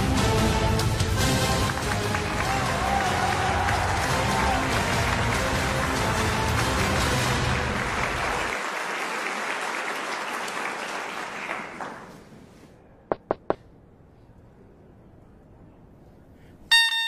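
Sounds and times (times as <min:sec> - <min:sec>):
music: 0:00.0 - 0:08.6
audience applauding: 0:01.2 - 0:12.2.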